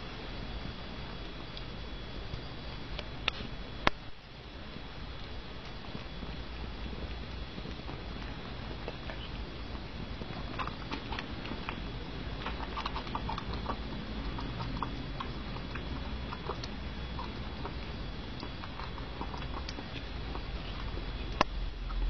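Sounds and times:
steady background hiss: 0.0s - 22.0s
cat eating clicks: 5.2s - 22.0s.

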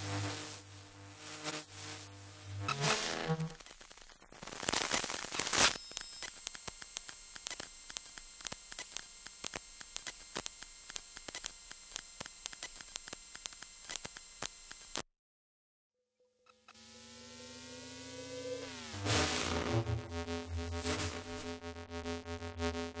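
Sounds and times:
static crackling: 0.0s - 15.0s, 16.6s - 23.0s
faint hum: 16.7s - 23.0s.

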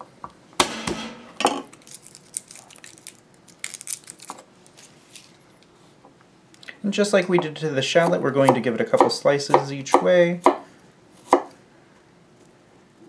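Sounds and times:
garlic skin crackling: 1.7s - 4.8s.

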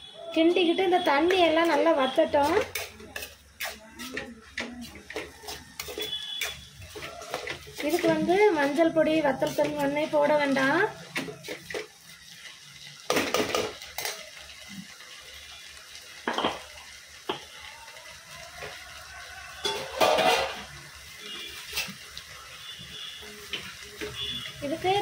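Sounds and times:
faint frying sizzle: 0.0s - 25.0s
steel spoon scraping a pan: 0.4s - 12.6s, 19.4s - 25.0s.

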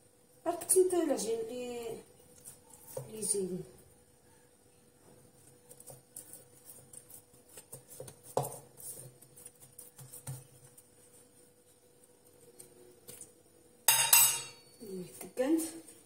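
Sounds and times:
hands handling dough: 4.9s - 13.4s.

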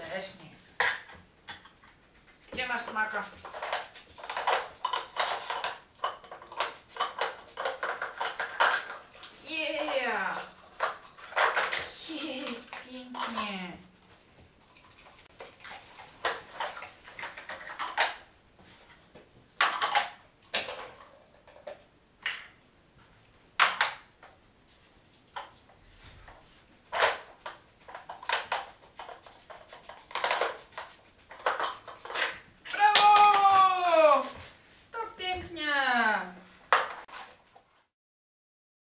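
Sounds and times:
plastic blocks clattering and knocking: 2.5s - 13.6s, 16.2s - 18.3s, 19.6s - 22.6s, 26.4s - 34.5s, 36.6s - 37.6s.

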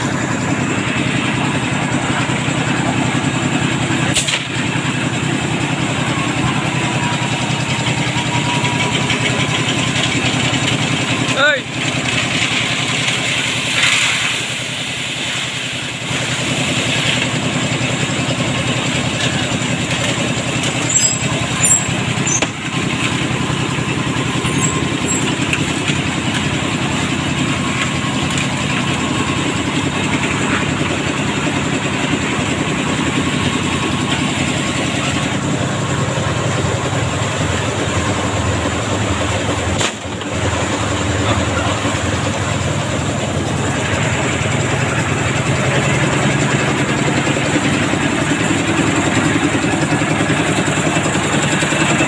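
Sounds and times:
concrete mixer engine running: 0.0s - 52.0s
drum turning wet concrete: 0.0s - 52.0s.

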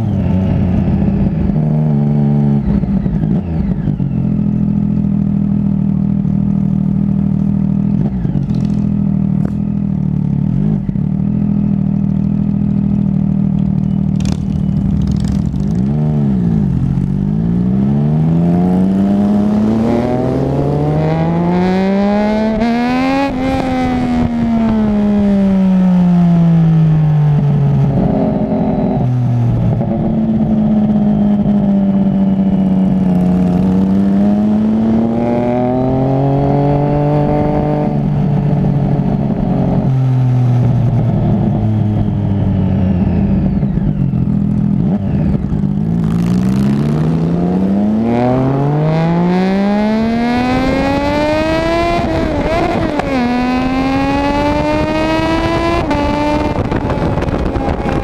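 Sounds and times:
motorcycle engine accelerating: 0.0s - 58.0s
wind rush: 33.0s - 58.0s.

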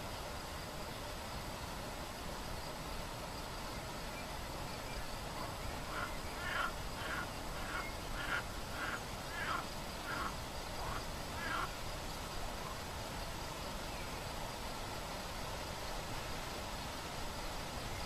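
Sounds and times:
steady outdoor hiss: 0.0s - 18.0s
duck quacking: 5.4s - 11.7s.

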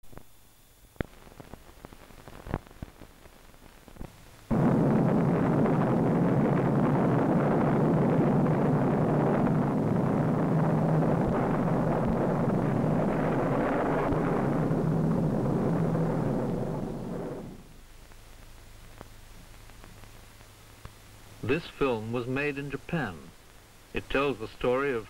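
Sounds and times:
explosion rumble: 4.5s - 18.0s
film soundtrack clicks and pops: 18.0s - 21.2s.

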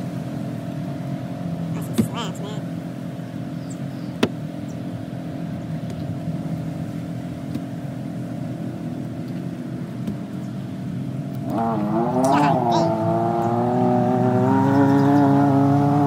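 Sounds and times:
engine revving: 11.3s - 16.0s.

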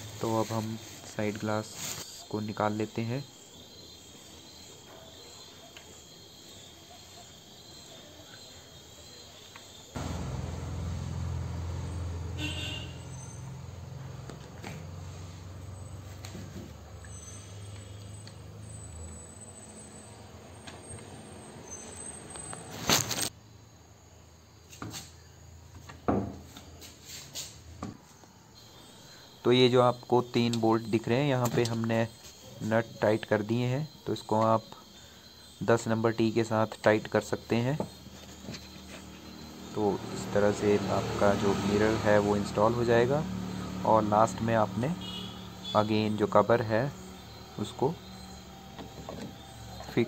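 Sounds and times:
high-pitched insect drone: 37.3s - 50.0s
car mirror parts clunking: 48.7s - 49.8s.

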